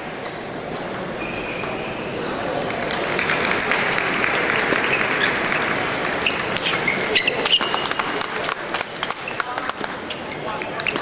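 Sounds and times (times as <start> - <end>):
spectators applauding: 2.8 - 6.3.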